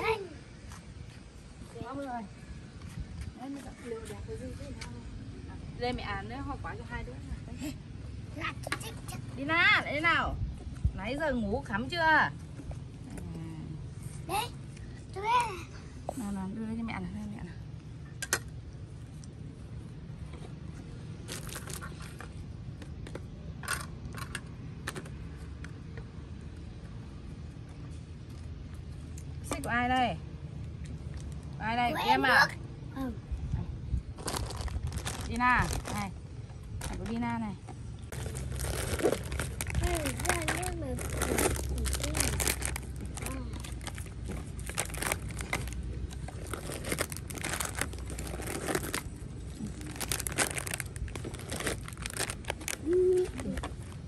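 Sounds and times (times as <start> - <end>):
steady low rumble: 32.5 - 54.0
plastic packets crinkling: 34.2 - 36.1, 38.1 - 54.0.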